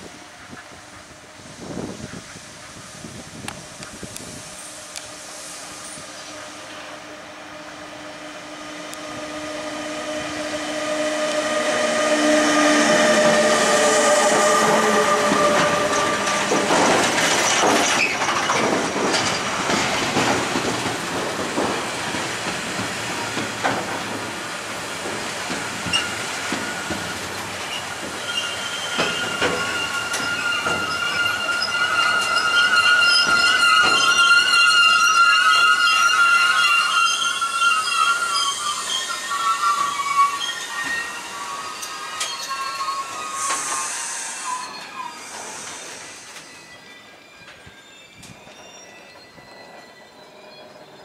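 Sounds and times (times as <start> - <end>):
electric locomotive whine: 0.0 - 51.0
high wheel squeal: 4.5 - 51.0
wheel clatter over rail joints: 12.8 - 43.8.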